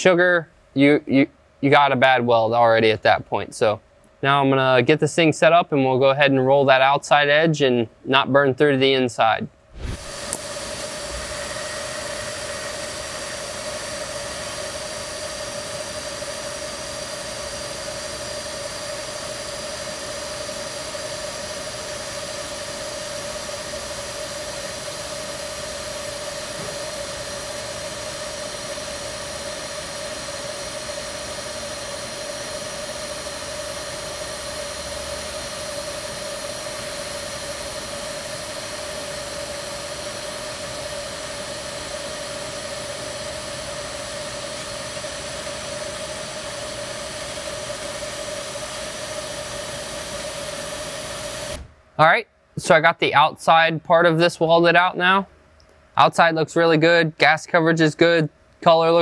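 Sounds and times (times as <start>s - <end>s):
welding arc hissing: 9.7s - 51.7s.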